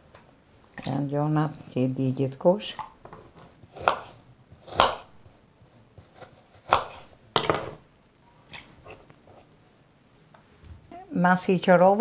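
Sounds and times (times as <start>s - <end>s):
knife chopping on wooden board: 3.7s - 5.2s, 6.1s - 7.8s.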